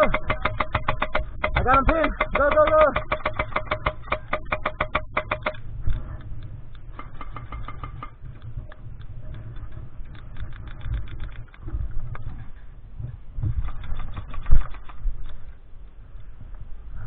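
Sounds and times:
airsoft gun firing full auto: 0:00.0 - 0:05.6.

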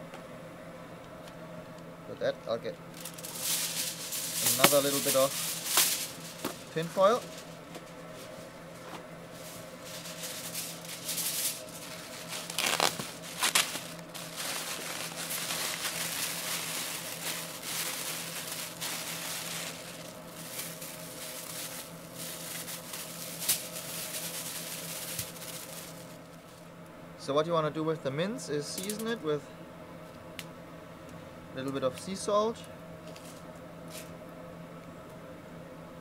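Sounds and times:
aluminium foil crinkling: 0:02.9 - 0:26.6
plastic bag rustling: 0:03.0 - 0:26.3.

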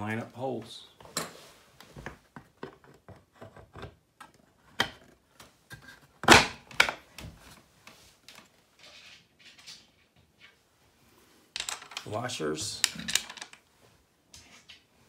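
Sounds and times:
wooden parts knocking and clicking: 0:11.6 - 0:13.7.

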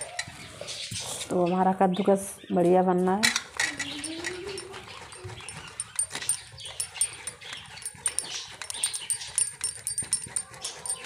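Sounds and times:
grater scraping on metal plate: 0:03.6 - 0:11.0
grating on a box grater: 0:03.8 - 0:11.0.

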